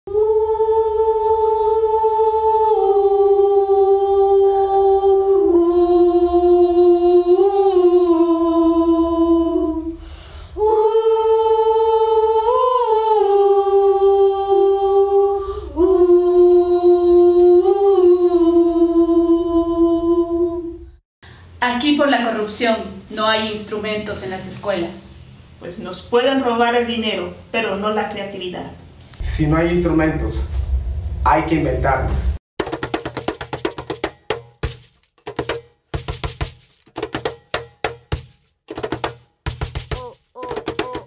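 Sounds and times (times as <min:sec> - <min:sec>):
wordless voice singing: 0:00.1 - 0:10.0, 0:10.6 - 0:20.8, 0:39.9 - 0:41.0.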